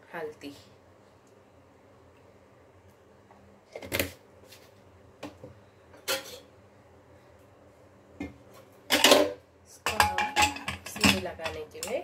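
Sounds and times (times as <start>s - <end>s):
kitchenware clinking: 6.0s - 6.5s, 8.9s - 12.0s.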